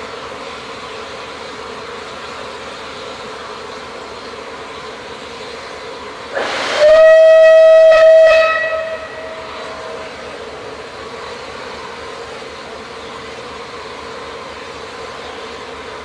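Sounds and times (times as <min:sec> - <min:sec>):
rush of steam: 0:00.0 - 0:16.0
steam hissing: 0:00.0 - 0:16.0
steam whistle: 0:06.3 - 0:10.3.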